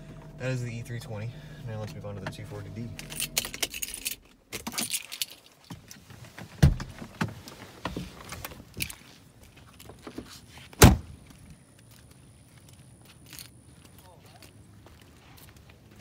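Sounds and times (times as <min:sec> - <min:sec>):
clicks and rattles in a car: 0:01.8 - 0:09.0
car door shutting with heavy thud: 0:06.6 - 0:07.1, 0:10.8 - 0:11.1
thump: 0:10.8 - 0:11.1.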